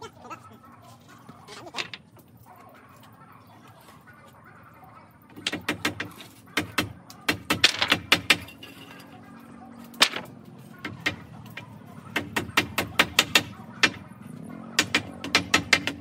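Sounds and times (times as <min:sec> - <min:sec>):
hammer striking nails into wood: 0:05.4 - 0:08.5, 0:12.1 - 0:14.0, 0:14.8 - 0:16.0.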